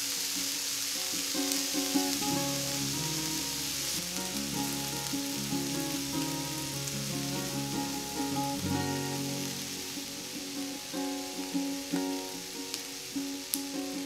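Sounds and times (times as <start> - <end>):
soft instrumental music: 0.0 - 14.0
steady high hiss: 0.0 - 14.0.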